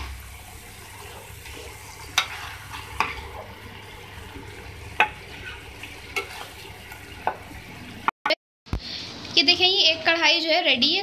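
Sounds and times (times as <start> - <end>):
low sizzle in pan: 0.0 - 8.1, 8.7 - 11.0
metal spoon scraping metal pan: 2.1 - 3.4, 5.0 - 6.6.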